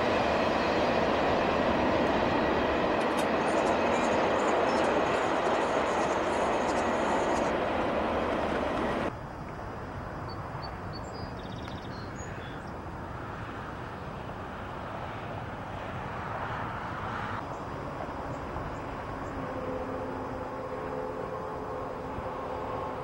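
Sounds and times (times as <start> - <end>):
distant train rumble: 0.0 - 23.0
train horn chord: 19.2 - 23.0.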